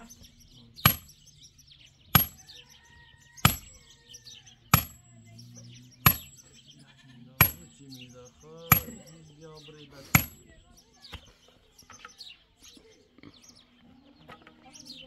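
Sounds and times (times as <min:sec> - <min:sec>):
sledgehammer striking stones: 0:00.8 - 0:01.3, 0:02.1 - 0:02.5, 0:03.4 - 0:03.8, 0:04.7 - 0:05.1, 0:06.0 - 0:06.4, 0:07.4 - 0:07.8, 0:08.7 - 0:09.1, 0:10.1 - 0:10.6.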